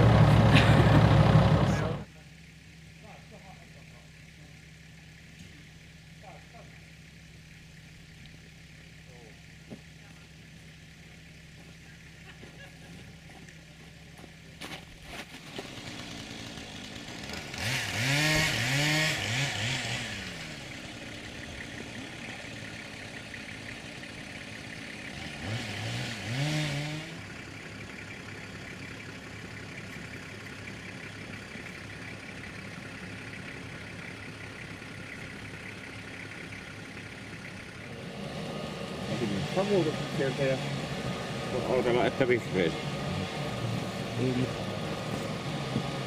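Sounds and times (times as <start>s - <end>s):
engine revving: 0.0s - 2.1s, 15.1s - 46.0s.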